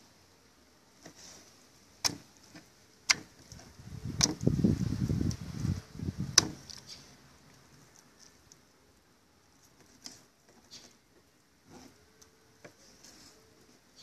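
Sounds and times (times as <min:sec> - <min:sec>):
knife striking plastic cutting board: 0:06.4 - 0:06.6.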